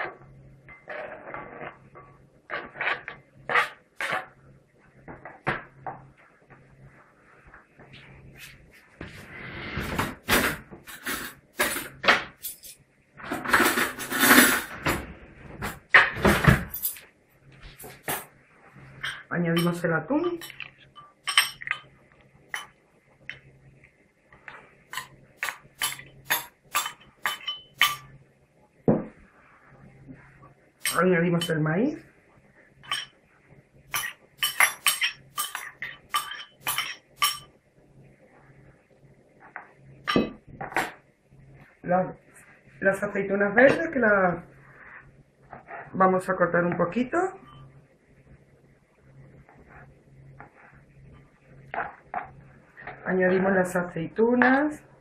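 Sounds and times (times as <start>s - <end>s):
rustling and scraping: 7.5s - 18.3s, 44.6s - 46.0s
kitchen knocks and clatters: 9.8s - 17.1s, 17.8s - 18.3s, 24.9s - 28.1s, 33.9s - 37.5s, 39.4s - 41.1s
spoon clinking against ceramic bowl: 20.4s - 21.9s, 25.0s - 28.1s, 33.9s - 37.5s.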